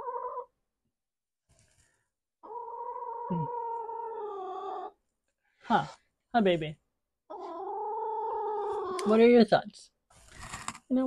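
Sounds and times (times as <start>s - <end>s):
pet animal long call: 2.4s - 5.0s, 7.3s - 9.1s.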